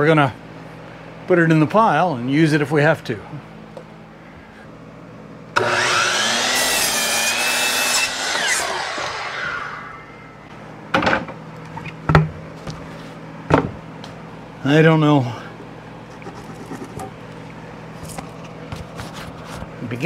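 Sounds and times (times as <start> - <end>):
miter saw cutting board: 5.6 - 10.4.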